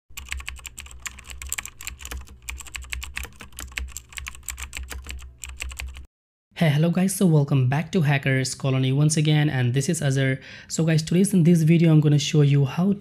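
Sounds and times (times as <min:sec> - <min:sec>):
keyboard typing clicks: 0:00.2 - 0:06.1.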